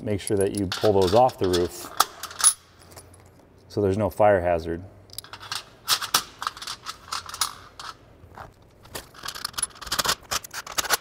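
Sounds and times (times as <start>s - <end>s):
metallic clicks and clinks: 0.2s - 3.4s, 5.1s - 8.0s, 9.1s - 10.2s.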